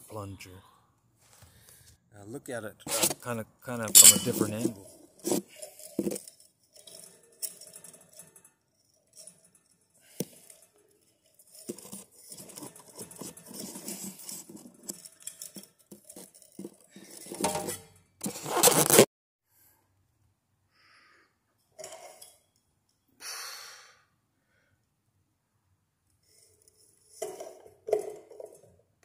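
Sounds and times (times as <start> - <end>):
metal parts clinking and knocking: 3.8 - 18.0, 26.3 - 28.8
rubbing and rustling near microphone: 11.4 - 17.5, 18.2 - 19.1.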